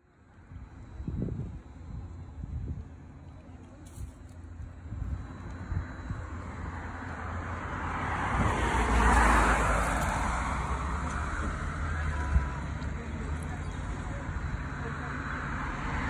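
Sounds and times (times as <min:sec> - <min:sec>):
car passing: 0:05.2 - 0:16.0.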